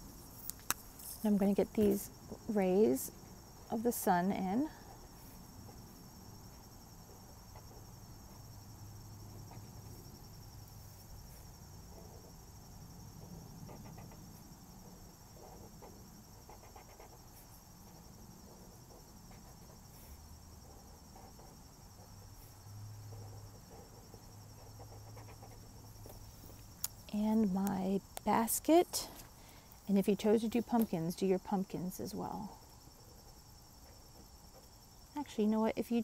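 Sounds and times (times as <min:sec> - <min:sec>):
marker scratching on paper: 0:13.7 - 0:14.3, 0:16.5 - 0:17.4, 0:23.3 - 0:25.7.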